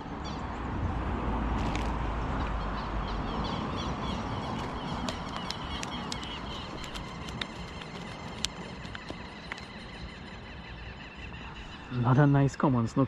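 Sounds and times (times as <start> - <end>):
highway traffic rumble: 0.0 - 13.0
small birds chirping: 2.4 - 13.0
sharp clicks: 4.5 - 9.8.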